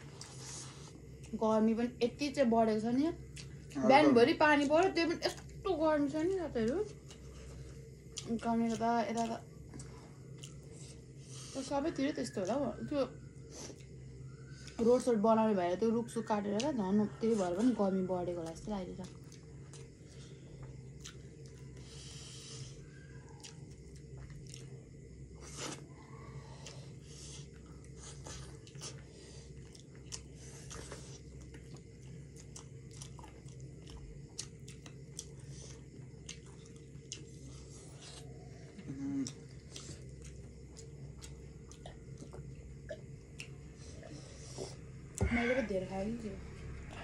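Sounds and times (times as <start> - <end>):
steady low hum: 0.0 - 47.0
chewing with wet mouth clicks: 3.2 - 3.8, 6.6 - 11.1, 13.7 - 14.8, 18.3 - 21.8, 22.9 - 44.2.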